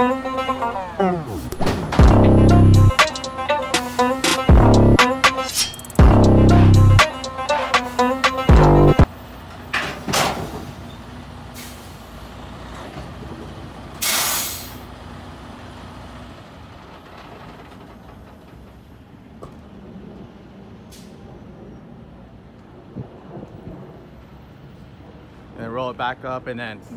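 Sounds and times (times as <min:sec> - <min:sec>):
low steady rumble: 0:02.0 - 0:03.0, 0:06.0 - 0:07.0
truck air system hissing: 0:14.0 - 0:14.8.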